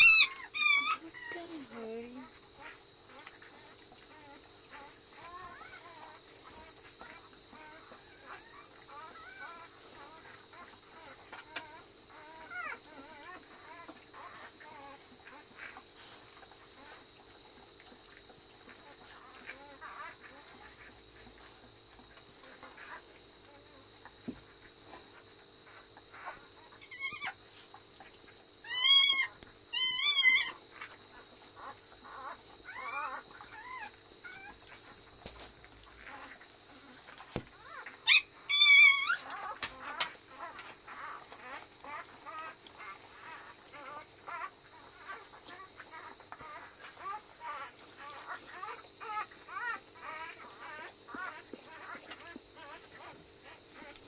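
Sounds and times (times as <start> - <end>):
puppy squealing: 0.0 - 1.8, 26.8 - 27.4, 28.6 - 30.6, 32.7 - 34.5, 37.6 - 40.0
faint puppy squeaks: 0.0 - 17.0, 24.9 - 27.7, 28.6 - 30.9, 31.6 - 54.0.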